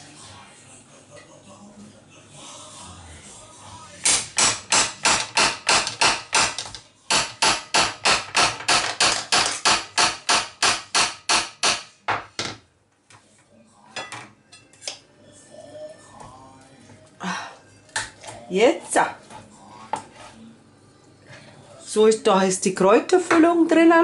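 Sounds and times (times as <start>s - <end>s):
meat mallet hammering pork: 4.1s - 11.9s.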